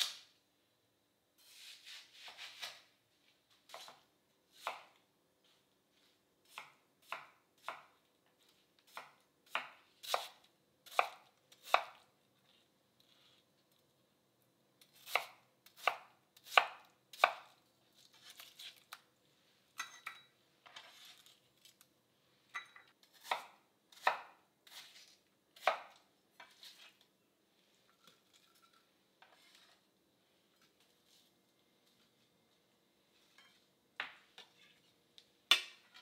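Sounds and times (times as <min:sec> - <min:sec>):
knife cutting on cutting board: 0:01.4 - 0:02.9, 0:23.1 - 0:27.0
knife knocking and scraping: 0:27.9 - 0:29.8.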